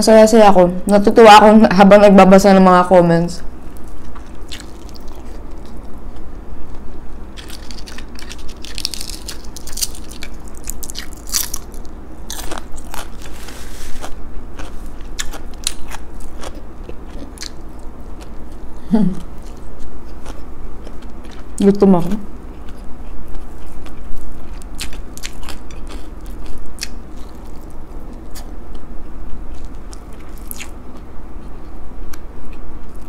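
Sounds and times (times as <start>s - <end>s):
chewing and crunching food: 3.7s - 33.0s
person humming: 18.8s - 19.3s.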